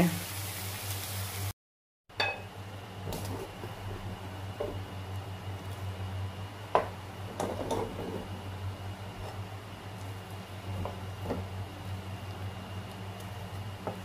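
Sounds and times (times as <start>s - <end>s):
low electrical hum: 2.1s - 14.0s
wooden spatula scraping a wok: 7.3s - 8.4s, 9.1s - 11.5s.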